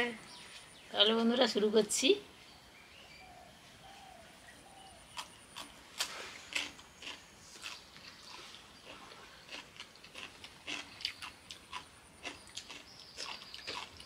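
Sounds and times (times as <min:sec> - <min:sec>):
wet chewing and lip smacks: 0:05.1 - 0:14.0.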